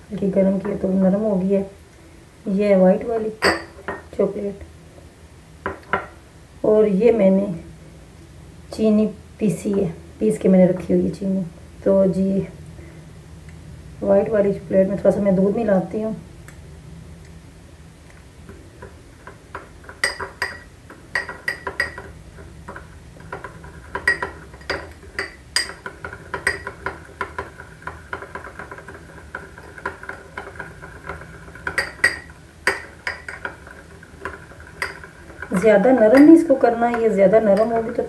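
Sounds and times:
spoon clinking against glass bowl: 19.9 - 22.1, 23.9 - 27.4.

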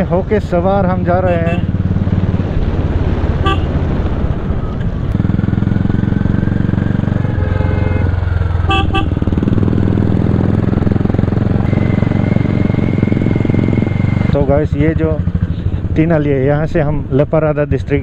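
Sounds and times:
motorcycle engine running: 0.0 - 17.2
horn toots: 1.2 - 1.8, 3.4 - 3.8, 7.2 - 9.4.

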